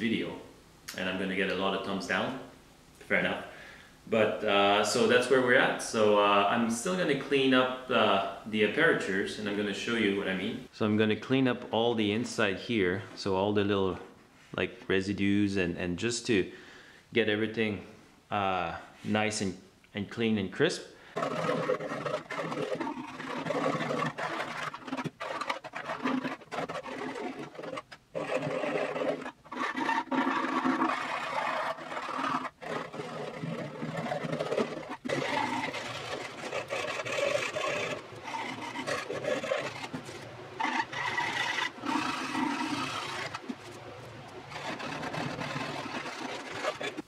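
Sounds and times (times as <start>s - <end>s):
hand file rasping on wood: 21.2s - 43.8s, 44.5s - 47.0s.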